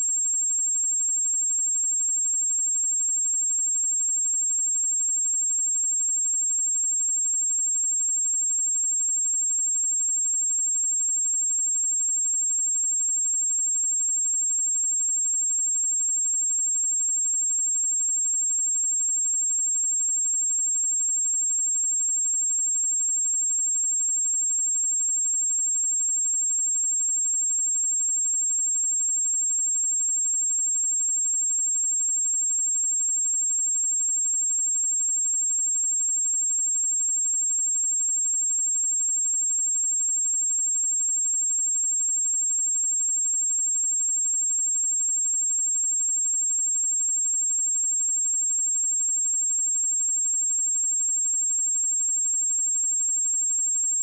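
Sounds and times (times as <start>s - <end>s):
high-pitched sine test tone: 0.0s - 54.0s.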